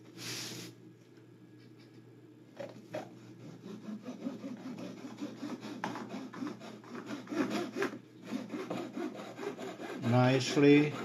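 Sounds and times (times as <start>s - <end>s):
hand saw cutting wood: 3.2s - 11.0s.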